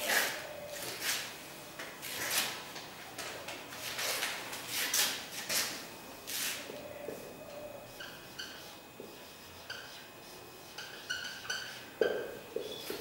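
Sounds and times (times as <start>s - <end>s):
marker pen writing on whiteboard: 8.0s - 13.0s.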